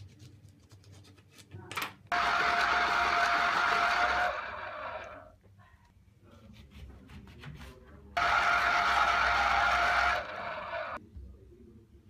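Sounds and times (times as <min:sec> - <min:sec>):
juicer motor: 0:02.1 - 0:05.3, 0:08.2 - 0:11.0.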